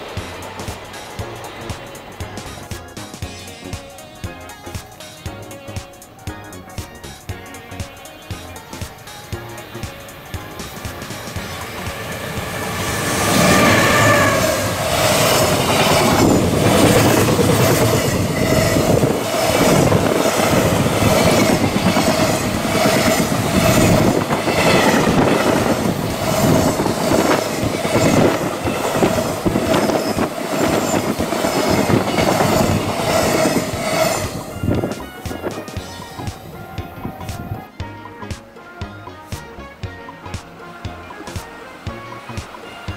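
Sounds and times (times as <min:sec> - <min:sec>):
electric locomotive passing: 0:00.0 - 0:37.7, 0:40.1 - 0:42.9
ringing tone from wheels: 0:00.0 - 0:37.7
wheels clattering over rail joints: 0:06.6 - 0:37.2.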